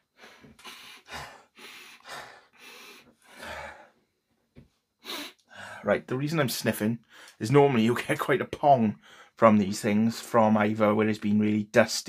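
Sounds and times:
man sniffing: 0.1s - 3.9s, 5.0s - 5.8s.

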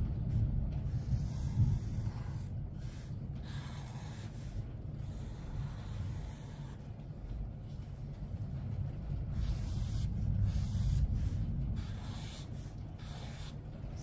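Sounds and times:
low steady rumble: 0.0s - 14.0s
marker scratching on paper: 0.9s - 6.9s, 9.3s - 13.6s.

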